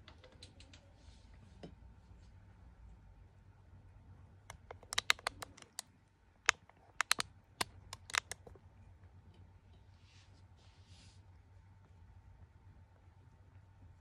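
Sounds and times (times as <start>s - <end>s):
sharp clicks: 4.5s - 5.8s, 6.5s - 8.5s.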